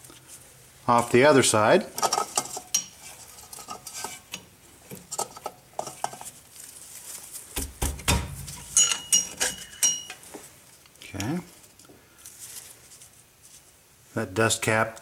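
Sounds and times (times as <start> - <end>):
metal ring: 8.5 - 10.3
screwdriver clicking and scraping metal: 8.6 - 10.2.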